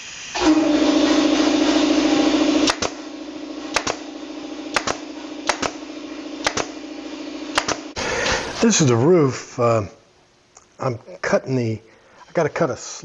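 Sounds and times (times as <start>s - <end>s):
steady hum: 0.0s - 12.2s
nail gun firing: 2.6s - 3.1s, 3.7s - 4.1s, 4.7s - 6.8s, 7.5s - 7.9s.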